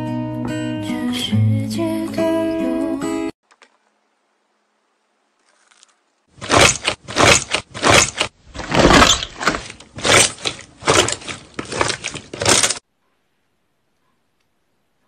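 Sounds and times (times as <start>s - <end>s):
slime squelching: 5.4s - 12.8s.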